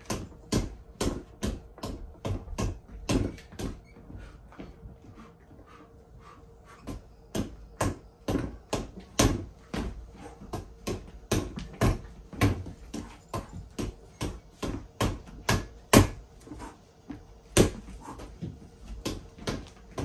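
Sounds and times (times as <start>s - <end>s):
punches thudding on reflex bag: 6.9s - 16.2s, 17.5s - 20.0s.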